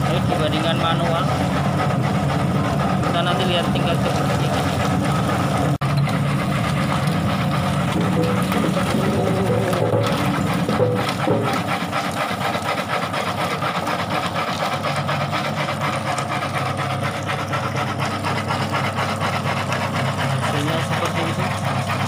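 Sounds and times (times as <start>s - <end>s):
peeling machine motor hum: 0.0s - 22.0s
tubers rattling in drum: 7.4s - 12.4s.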